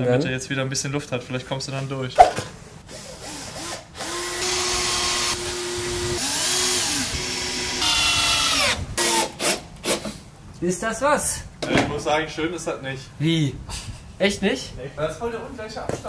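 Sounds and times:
circular saw cutting wood: 2.9s - 10.0s.

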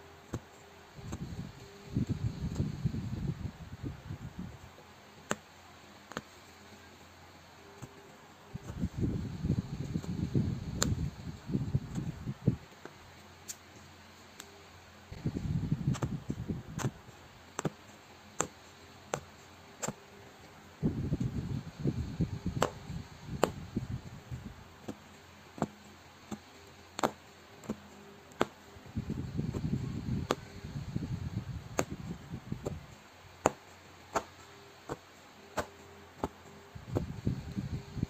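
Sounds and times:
punch needle ticking through fabric: 6.1s - 6.4s, 8.6s - 11.2s, 15.9s - 20.1s, 22.5s - 23.7s, 24.8s - 30.9s, 31.6s - 37.8s.

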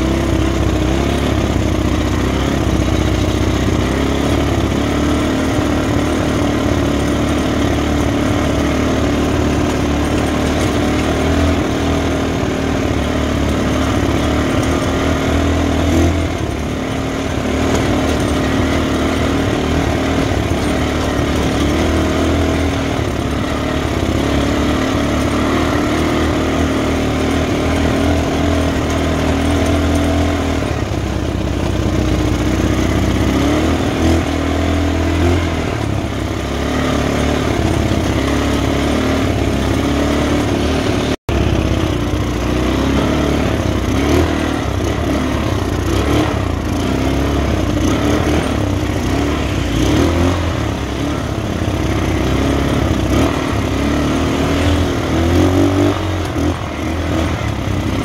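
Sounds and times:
buggy engine running: 0.0s - 58.0s
road rumble: 0.0s - 58.0s.

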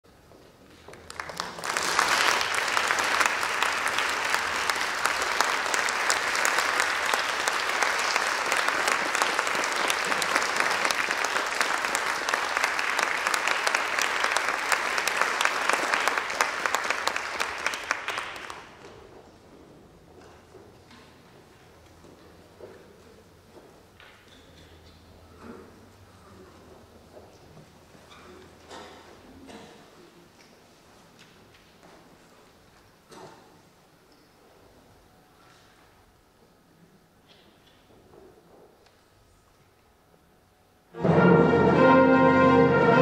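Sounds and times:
audience applauding: 0.9s - 18.9s.

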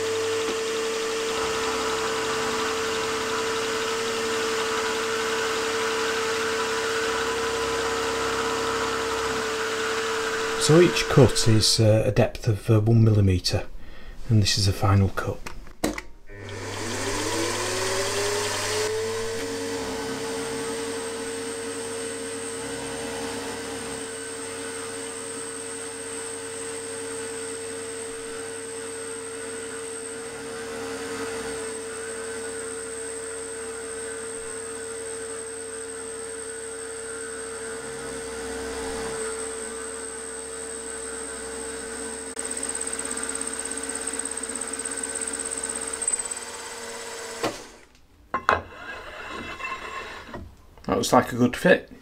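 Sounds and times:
milling machine motor whine: 0.0s - 11.6s, 16.3s - 47.9s
end mill cutting aluminium: 0.4s - 11.6s, 41.8s - 50.4s.

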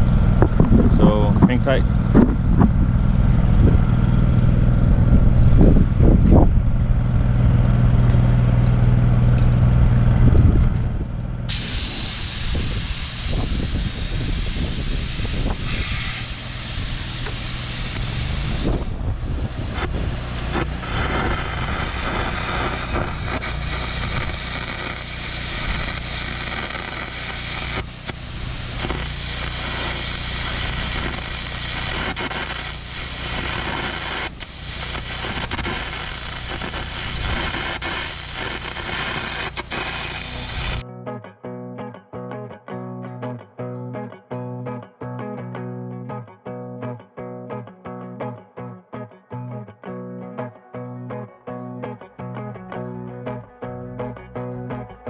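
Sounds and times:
machine humming: 0.0s - 40.8s
compressed air hissing: 11.5s - 40.8s
electric arc crackling: 11.5s - 40.8s.

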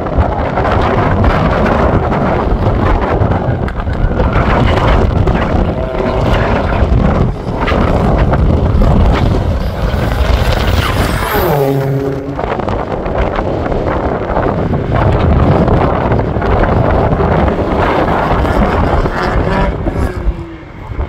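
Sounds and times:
wind buffeting microphone: 0.0s - 21.0s
car engine accelerating: 5.0s - 14.2s.

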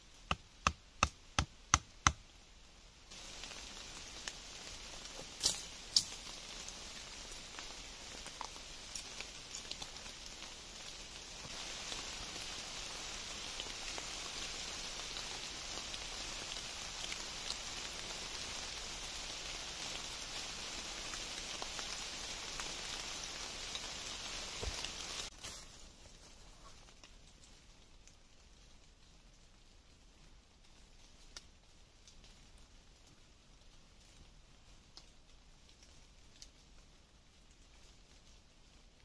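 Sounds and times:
faint ticks: 34.8s - 36.9s.

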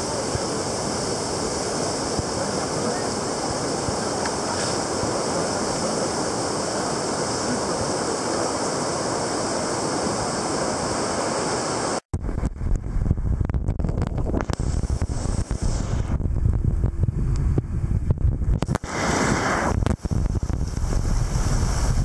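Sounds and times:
whitewater rapids rushing: 0.0s - 12.0s
wind on microphone: 0.0s - 22.0s.

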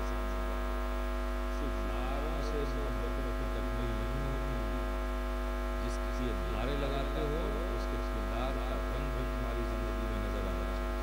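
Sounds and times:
electrical mains hum and buzz: 0.0s - 11.0s
faint voices: 1.5s - 4.8s, 5.8s - 10.9s.

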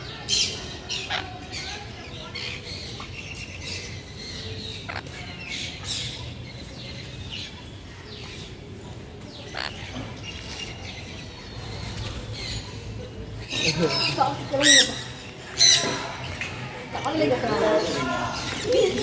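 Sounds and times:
small birds chirping: 0.0s - 19.0s
bird squawks: 4.8s - 5.4s, 9.4s - 10.1s.

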